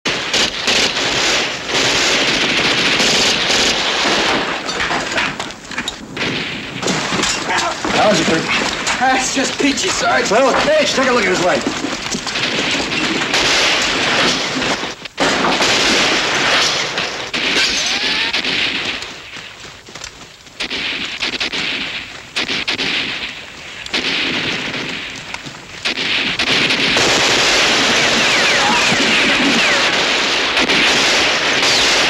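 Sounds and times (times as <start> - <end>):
automatic gunfire bursts: 0.1 - 4.6, 25.8 - 32.0.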